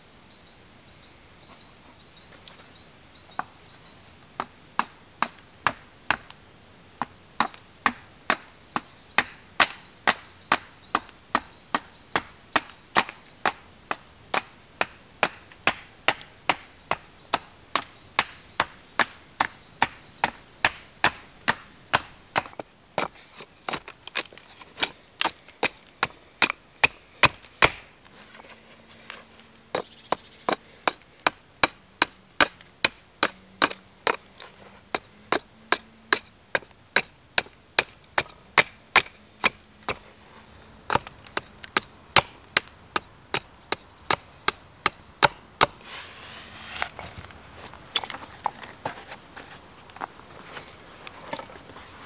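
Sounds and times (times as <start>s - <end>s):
hatchet striking wood: 4.4s - 6.4s, 7.0s - 27.9s, 30.5s - 34.3s, 34.9s - 40.0s, 40.9s - 45.8s.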